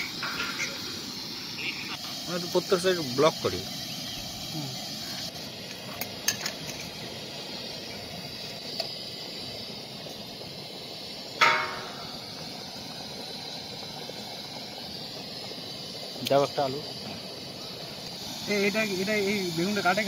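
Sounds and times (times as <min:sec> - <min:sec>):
rice boiling hiss: 0:00.0 - 0:20.0
sharp ringing clink: 0:11.4 - 0:12.2.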